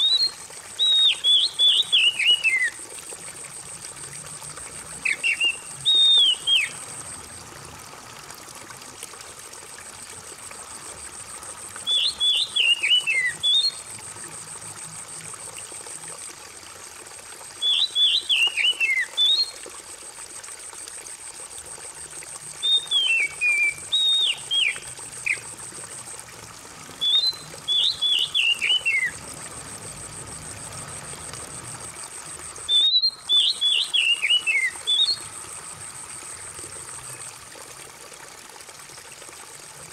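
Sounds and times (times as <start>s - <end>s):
bird song of whistled notes: 0.0s - 2.8s, 5.0s - 6.8s, 11.8s - 13.8s, 17.6s - 19.6s, 22.6s - 25.4s, 27.0s - 29.2s, 32.6s - 35.3s
trickle of running water: 0.0s - 39.9s.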